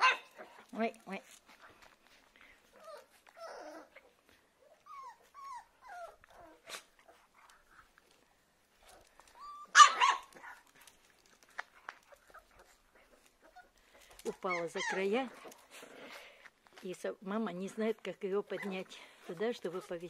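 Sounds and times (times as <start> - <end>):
puppy whimpering: 2.6 - 7.7, 8.9 - 10.6, 12.0 - 15.7
puppy squealing yelp: 9.4 - 10.6, 14.3 - 15.2.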